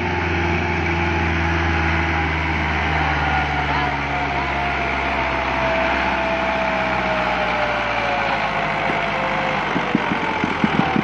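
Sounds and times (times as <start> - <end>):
tractor diesel engine straining: 0.0 - 11.0
rapid knocking pulse: 9.6 - 11.0.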